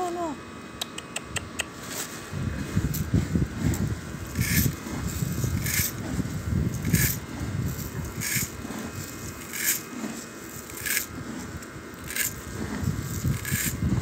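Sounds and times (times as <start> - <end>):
grain rattling in a steel bowl: 6.8 - 11.1, 12.0 - 13.8.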